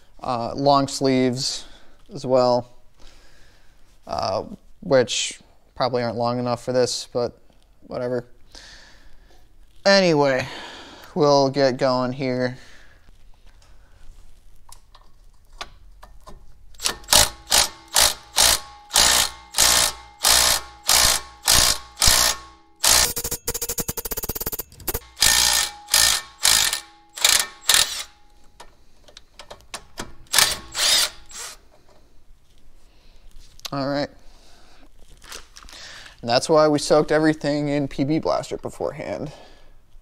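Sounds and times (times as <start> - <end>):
impact driver hammering bolt: 16.8 - 28.2, 29.8 - 31.6.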